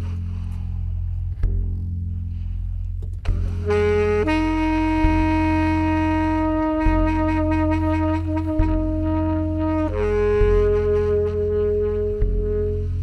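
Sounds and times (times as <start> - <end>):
low looped figure: 0.0 - 13.0
baritone saxophone notes: 3.3 - 13.0.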